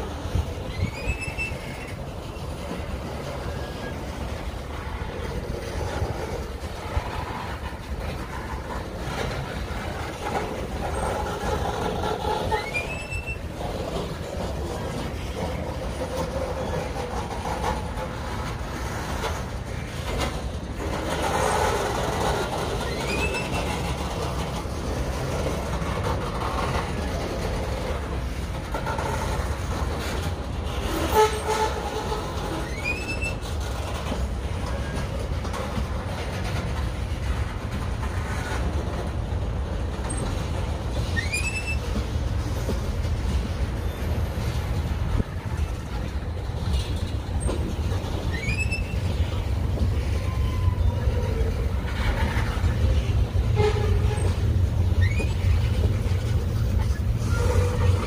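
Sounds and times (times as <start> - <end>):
freight train wheels rumbling: 0.0 - 58.0
high rising squeaks: 0.4 - 4.4, 12.2 - 13.7, 22.4 - 24.0, 30.8 - 33.9, 40.1 - 42.1, 43.8 - 58.0.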